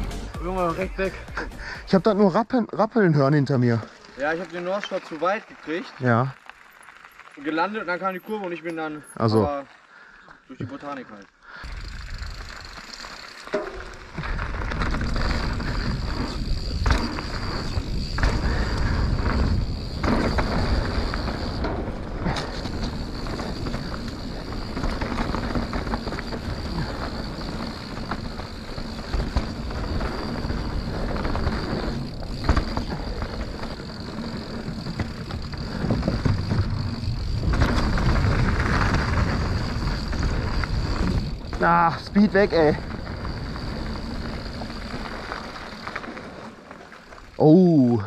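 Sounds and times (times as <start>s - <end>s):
bike rattling over rough ground: 0.0s - 48.0s.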